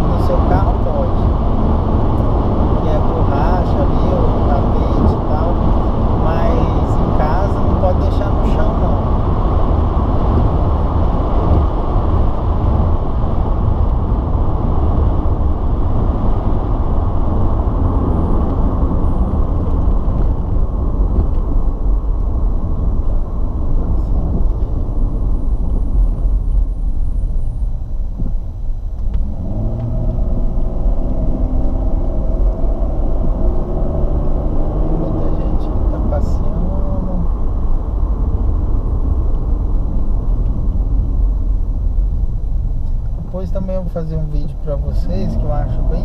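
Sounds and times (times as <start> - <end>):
car engine rumble: 0.0 - 46.0
road noise: 0.0 - 46.0.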